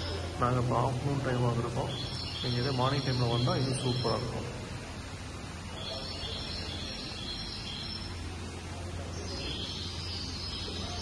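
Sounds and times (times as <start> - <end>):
faint high chirping: 1.6 - 4.6, 5.6 - 11.0.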